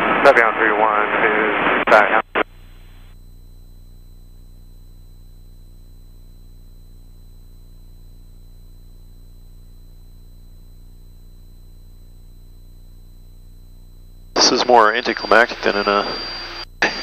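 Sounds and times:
faint high whine: 0.0s - 17.0s
low cockpit hum: 0.0s - 17.0s.

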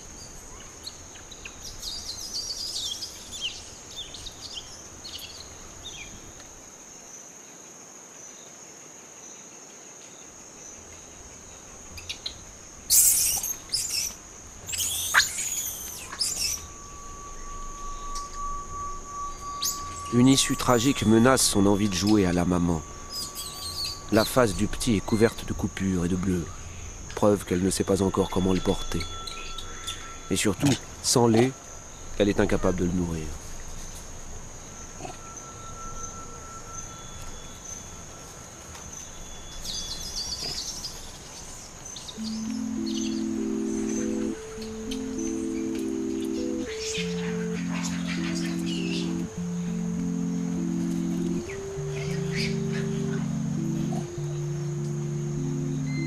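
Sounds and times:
crickets buzzing: 0.0s - 56.0s
faint steady tone: 0.0s - 56.0s
insects droning: 0.0s - 56.0s
monkeys screaming: 12.9s - 16.9s, 19.6s - 24.5s
warbling bird call: 12.9s - 27.0s, 42.1s - 56.0s.

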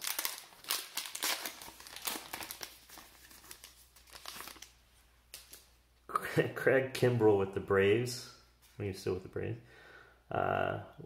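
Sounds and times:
foil wrapper crinkling: 0.0s - 5.7s.

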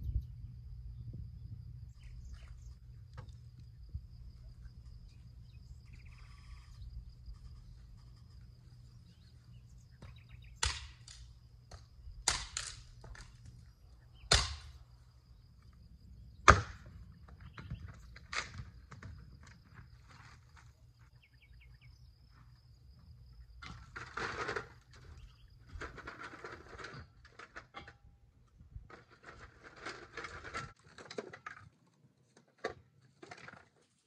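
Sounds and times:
hatchet chopping into a log: 10.6s - 11.2s, 14.3s - 14.7s.

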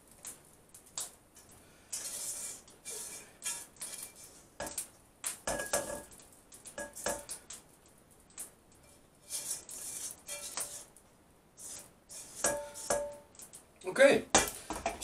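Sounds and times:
spatula scraping and tapping wok: 1.0s - 7.6s, 8.3s - 11.0s, 11.6s - 13.6s.

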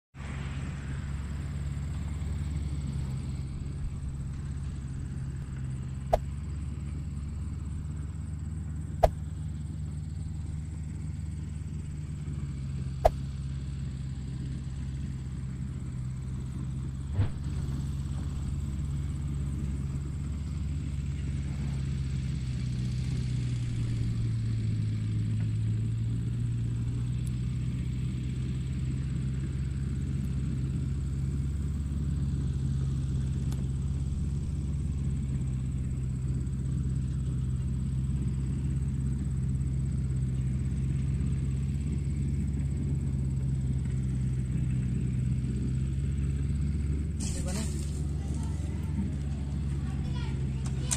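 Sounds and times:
toy tractor motor humming: 23.0s - 50.9s.

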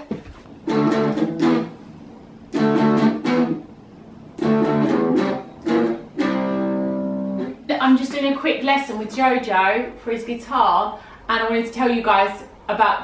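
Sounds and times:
electric guitar strummed chords: 0.6s - 1.8s, 2.5s - 3.7s, 4.4s - 7.6s.

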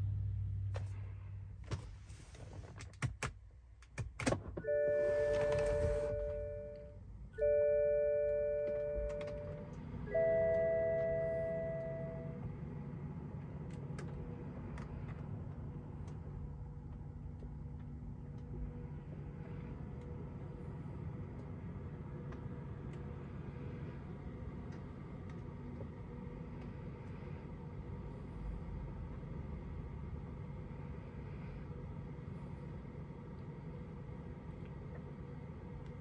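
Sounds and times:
steady low hum: 0.0s - 36.0s
dashboard warning chime: 4.6s - 12.4s.

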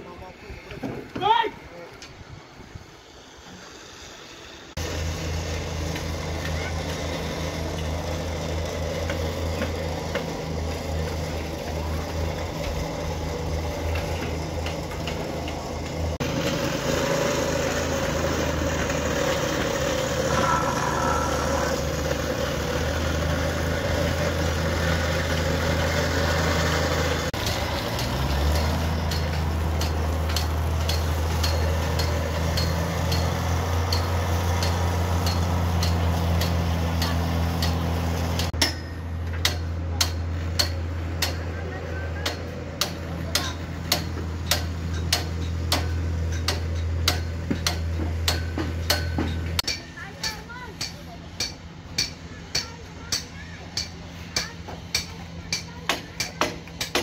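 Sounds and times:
small engine humming: 2.5s - 39.2s.

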